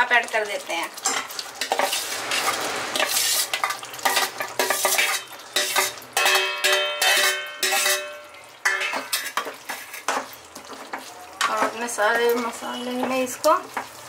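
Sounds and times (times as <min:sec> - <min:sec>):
steel ladle clattering on plate: 0:01.0 - 0:10.3.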